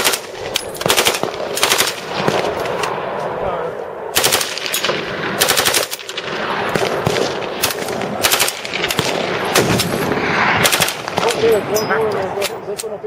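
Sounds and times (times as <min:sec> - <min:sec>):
automatic rifle bursts: 0:04.2 - 0:06.0, 0:07.0 - 0:09.1.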